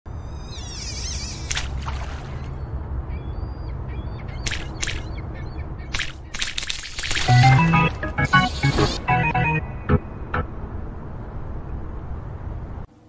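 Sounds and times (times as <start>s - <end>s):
bird calls: 0.2s - 7.4s
fishing float splashing: 1.4s - 2.6s, 6.0s - 7.9s
steady low rumble: 9.3s - 13.0s.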